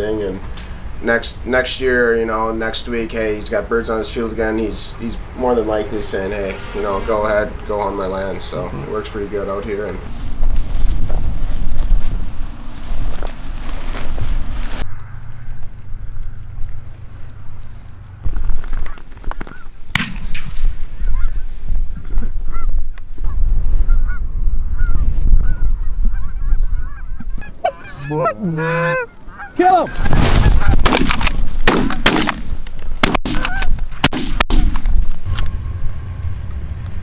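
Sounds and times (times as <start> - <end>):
wind rumbling on microphone: 0.0 - 29.4, 30.0 - 31.7, 34.7 - 37.0
geese honking: 20.9 - 30.8, 33.4 - 33.8.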